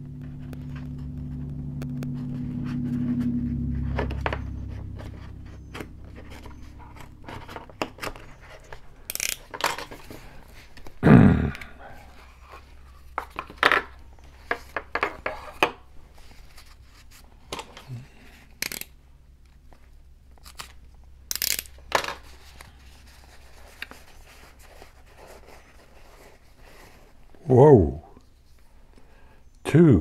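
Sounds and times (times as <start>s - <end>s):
tape tearing: 5.7s - 10.2s, 18.5s - 18.9s, 20.4s - 24.1s.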